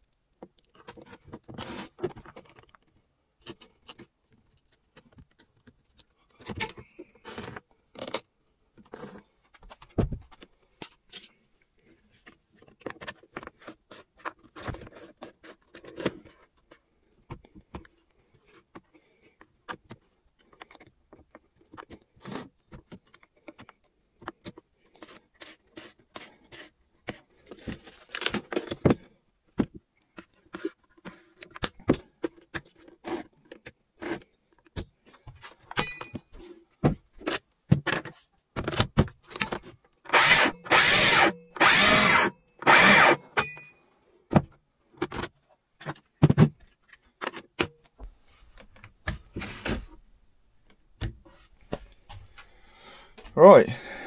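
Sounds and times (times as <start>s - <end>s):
electric chainsaw motor spinning: 40.1s - 43.2s.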